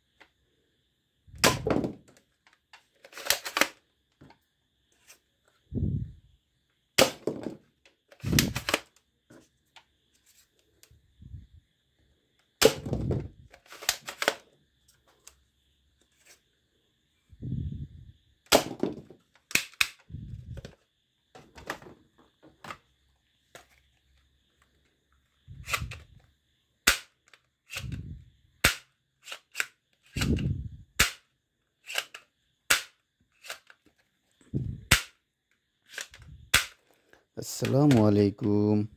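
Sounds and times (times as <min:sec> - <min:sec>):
plastic toy blaster clicks: 0:03.0 - 0:03.8, 0:13.5 - 0:14.4, 0:19.4 - 0:20.1, 0:28.6 - 0:33.8.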